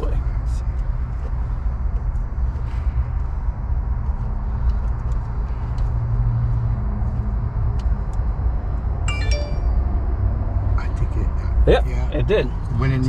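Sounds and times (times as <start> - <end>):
high ringing tone: 9.1 - 10.2.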